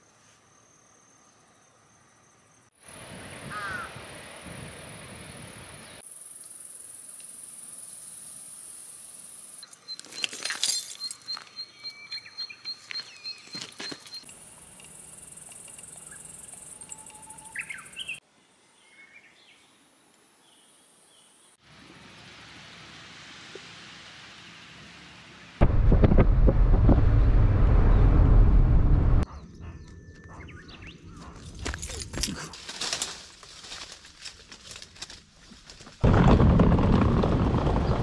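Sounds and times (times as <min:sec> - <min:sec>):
high insect hiss: 0:00.0 - 0:09.8, 0:14.2 - 0:18.8
bird chirps: 0:09.6 - 0:18.2, 0:29.2 - 0:31.5.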